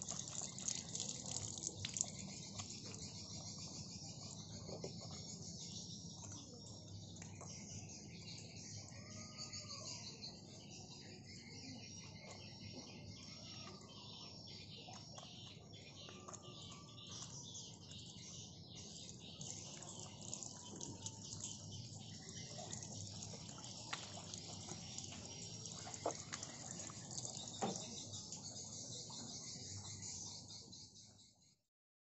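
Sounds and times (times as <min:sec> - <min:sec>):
water trickling from a tap: 0:00.0 - 0:05.4, 0:16.1 - 0:30.4
sharp drip-like ticks: 0:00.0 - 0:08.9, 0:14.8 - 0:30.4.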